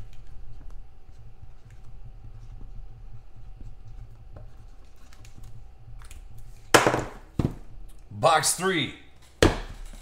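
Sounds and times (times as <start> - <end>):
marker scratching on cardboard: 0.0 - 6.6.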